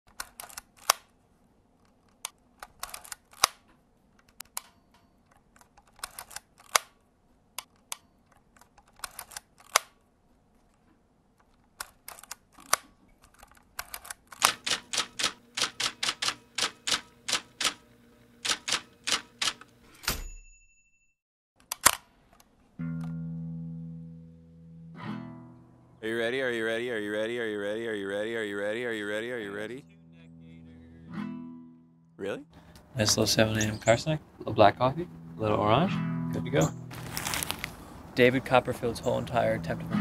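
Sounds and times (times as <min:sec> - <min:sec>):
typewriter keys clacking: 0:11.8 - 0:17.8, 0:18.4 - 0:19.7
typewriter bell ring: 0:18.5 - 0:21.2.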